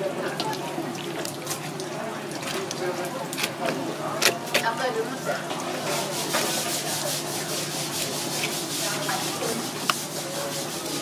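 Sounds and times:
knife scraping fish scales: 0:03.3 - 0:04.7.

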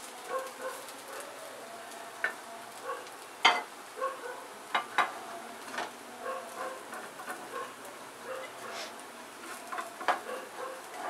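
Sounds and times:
faint sizzling on griddle: 0:00.0 - 0:11.0
metal spoon scraping griddle: 0:04.8 - 0:11.0.

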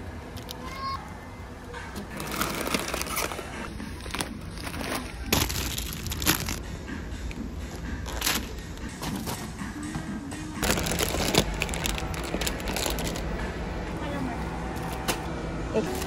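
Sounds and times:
packaging crinkling and rustling: 0:02.1 - 0:06.6, 0:10.6 - 0:13.3.

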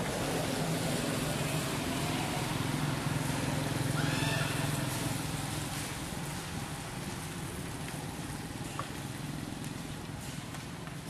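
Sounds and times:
noisy hiss: 0:00.0 - 0:11.0
high squealing call: 0:03.9 - 0:04.8.

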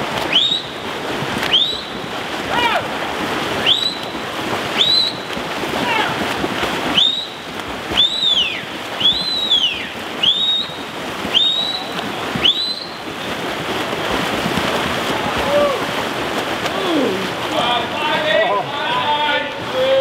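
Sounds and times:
swimmers splashing water: 0:00.0 - 0:20.0
swooping whistle-like tone: 0:00.3 - 0:00.8, 0:01.5 - 0:01.9, 0:03.6 - 0:04.1, 0:04.8 - 0:05.3, 0:06.9 - 0:07.4, 0:08.0 - 0:13.0.

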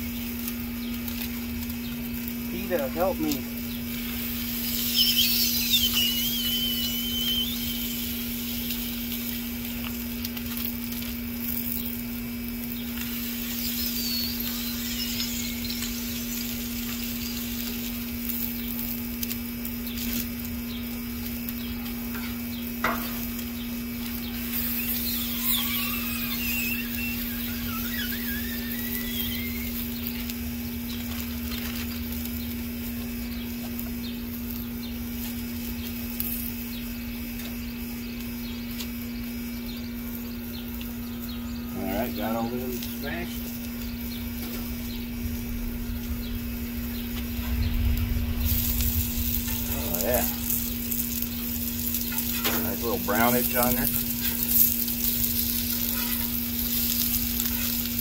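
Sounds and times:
patties sizzling on a griddle: 0:00.0 - 0:58.0
low hum: 0:00.1 - 0:41.8, 0:42.6 - 0:58.0
high wavering squeals: 0:03.9 - 0:09.4, 0:12.6 - 0:18.6, 0:22.9 - 0:30.2, 0:41.7 - 0:58.0.

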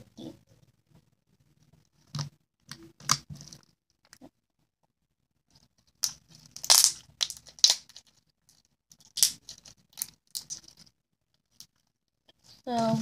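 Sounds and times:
slime clicking and popping: 0:06.0 - 0:08.0, 0:09.0 - 0:10.7.

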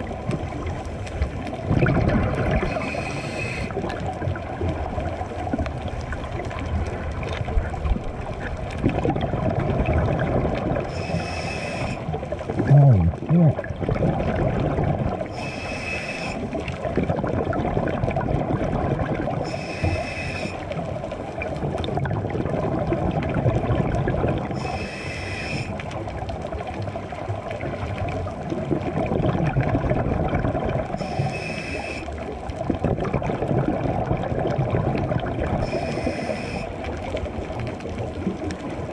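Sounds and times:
bubbling exhalations underwater: 0:00.0 - 0:11.2, 0:11.8 - 0:15.4, 0:16.4 - 0:19.5, 0:20.8 - 0:24.8, 0:27.0 - 0:31.3, 0:32.2 - 0:38.9
regulator inhalation hisses: 0:02.7 - 0:03.8, 0:10.9 - 0:12.0, 0:15.3 - 0:16.4, 0:19.5 - 0:20.6, 0:24.6 - 0:25.8, 0:31.0 - 0:32.1, 0:35.6 - 0:36.7.

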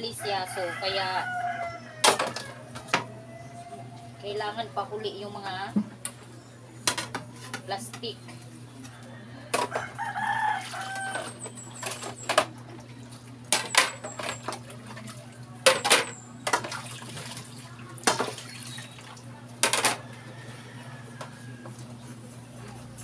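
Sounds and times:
plates clattering at a sink: 0:02.0 - 0:03.1, 0:06.8 - 0:07.7, 0:13.5 - 0:20.1.

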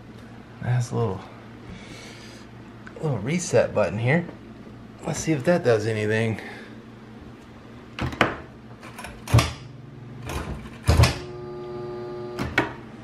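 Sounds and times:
dishwasher motor buzzing: 0:07.9 - 0:13.0.

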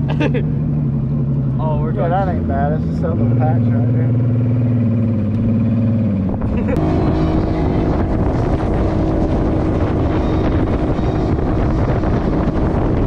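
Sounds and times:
motorboat engine running: 0:00.0 - 0:13.0
wind buffeting microphone: 0:04.4 - 0:13.0.

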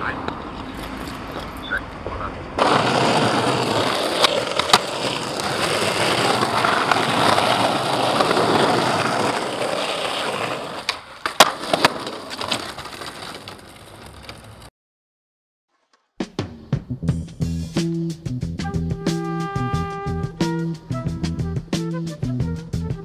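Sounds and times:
skateboard wheels rolling on asphalt: 0:00.0 - 0:14.7
skateboard clacking on ground: 0:02.6 - 0:14.7.

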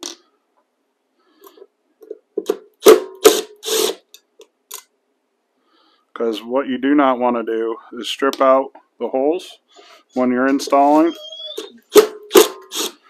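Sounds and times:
impact driver bursts: 0:02.8 - 0:04.1, 0:11.9 - 0:13.0.

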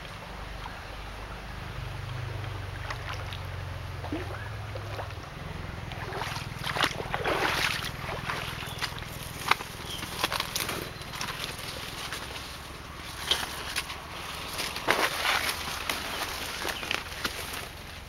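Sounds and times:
twigs cracking: 0:06.0 - 0:18.0
footsteps through leaf litter: 0:06.5 - 0:18.0.

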